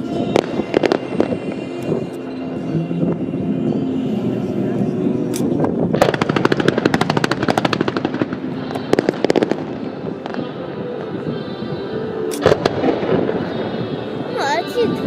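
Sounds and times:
fireworks cracking and popping: 6.0 - 10.6.

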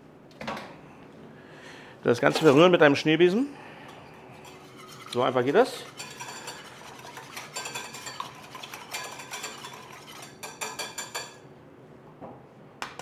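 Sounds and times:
whisk clinking against pan: 4.4 - 11.4.

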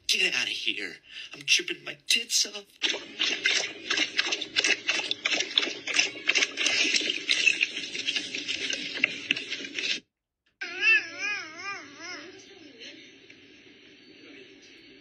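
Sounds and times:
dog lapping water from bowl: 2.8 - 10.0.

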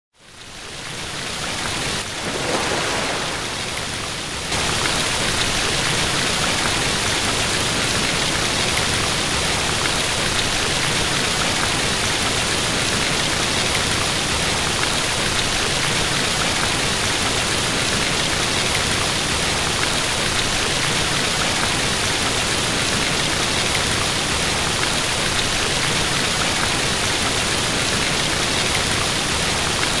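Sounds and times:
hiss of falling water: 0.3 - 30.0.

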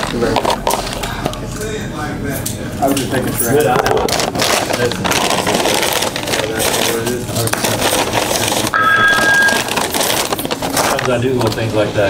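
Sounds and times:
paper bag crinkling and rustling: 3.1 - 12.0
electronic desk phone ringing: 8.8 - 9.9.

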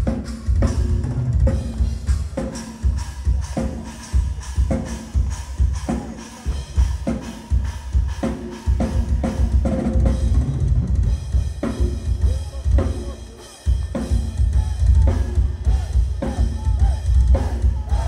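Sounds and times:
bass drum: 0.0 - 18.0.

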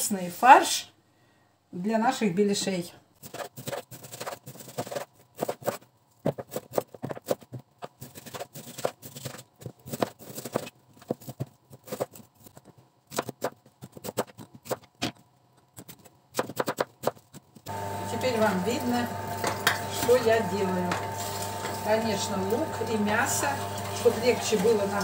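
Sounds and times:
knife chopping on wooden board: 15.8 - 17.3.

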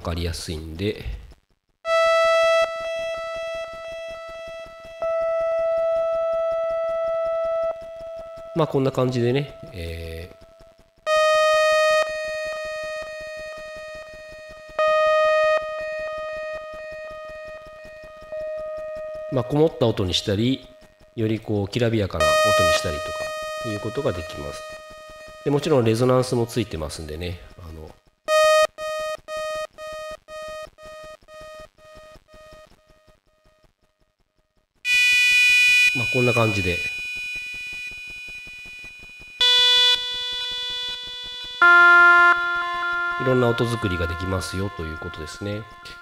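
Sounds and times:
synthesizer sawtooth note: 1.9 - 21.5, 22.2 - 32.6, 34.9 - 46.0
bright synthesizer note echoing: 22.2 - 27.2, 35.9 - 46.0.

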